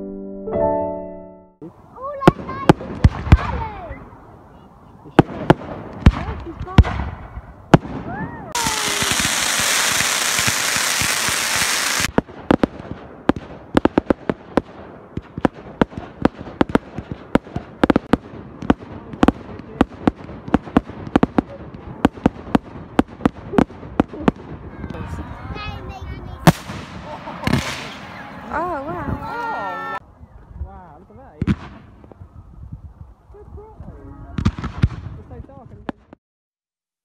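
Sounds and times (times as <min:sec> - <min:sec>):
fireworks popping and banging: 0:02.1 - 0:04.0, 0:05.1 - 0:25.0, 0:26.4 - 0:28.7, 0:31.3 - 0:32.2, 0:34.4 - 0:36.2
firework hissing: 0:08.0 - 0:12.2.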